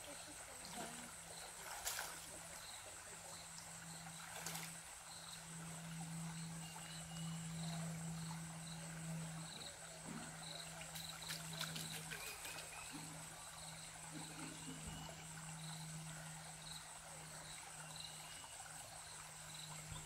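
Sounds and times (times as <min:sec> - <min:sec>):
small splashes in water: 0:00.0 - 0:03.5, 0:04.1 - 0:04.9, 0:10.2 - 0:13.3
insects buzzing and chirping: 0:00.0 - 0:20.0
steady low hum: 0:00.0 - 0:20.0
stream trickling: 0:00.0 - 0:20.0.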